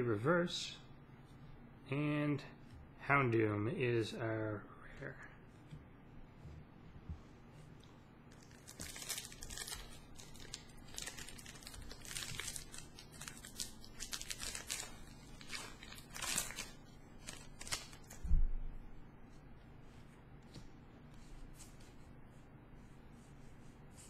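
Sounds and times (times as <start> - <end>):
foil wrapper crinkling and tearing: 8.3 - 18.2.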